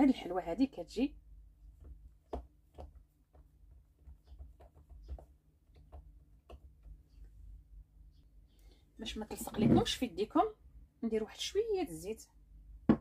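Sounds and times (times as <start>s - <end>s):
low steady hum: 0.0s - 13.0s
hands tapping and clicking on mould: 1.7s - 7.2s.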